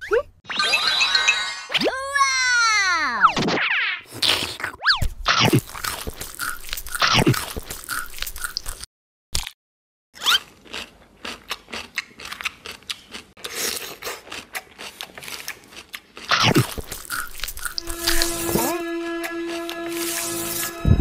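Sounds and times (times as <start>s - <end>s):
crunchy food chewing: 5.5s - 9.6s, 10.3s - 18.4s.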